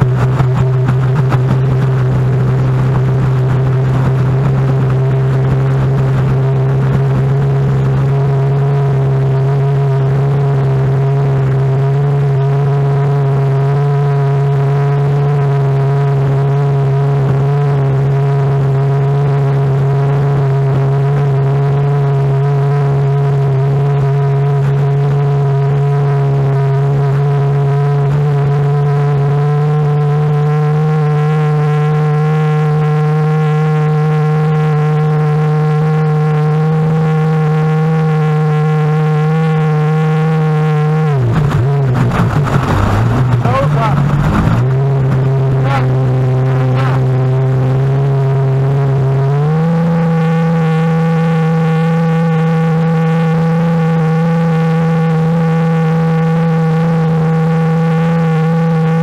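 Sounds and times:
personal watercraft engine running: 0.0s - 59.0s.

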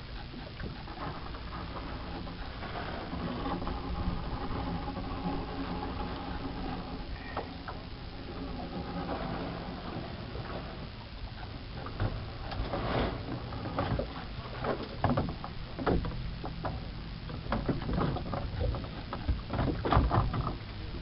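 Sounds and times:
low rumble: 0.0s - 21.0s
wooden boat knocks and clunks: 11.9s - 20.7s.

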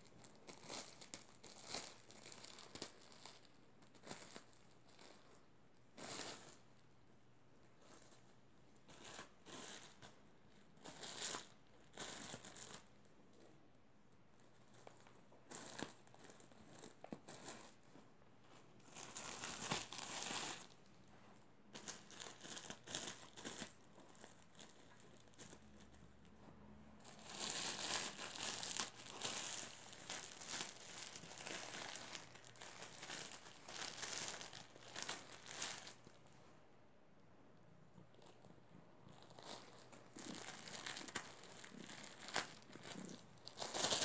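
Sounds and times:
plastic bags crinkling: 0.1s - 5.4s, 18.8s - 20.8s, 21.7s - 25.9s, 27.0s - 36.2s, 38.2s - 44.0s.

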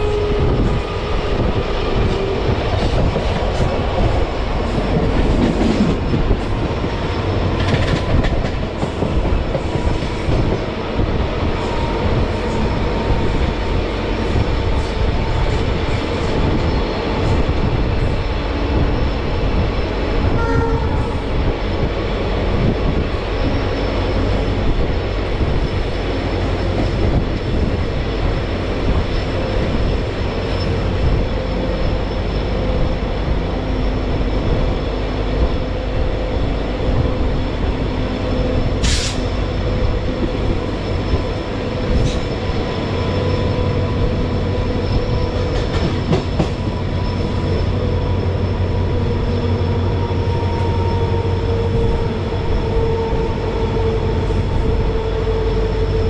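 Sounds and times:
train wheels rumbling on rails: 0.0s - 56.0s
train horn: 20.3s - 21.2s.

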